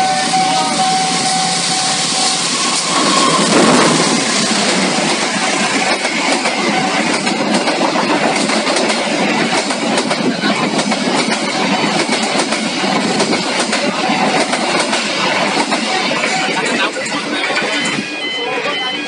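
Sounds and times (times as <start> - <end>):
train wheels rushing on rails: 0.0 - 19.0
clickety-clack over rail joints: 2.9 - 18.0.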